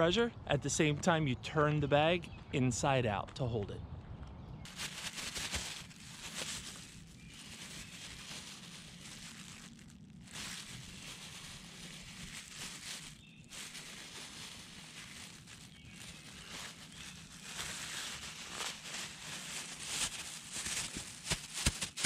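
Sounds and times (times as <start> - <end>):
plastic bag crinkling: 4.7 - 22.0.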